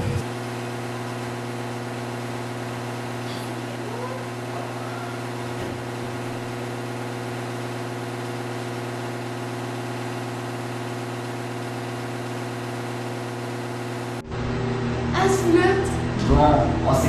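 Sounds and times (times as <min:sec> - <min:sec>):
steady low hum of held tones: 0:00.9 - 0:07.1.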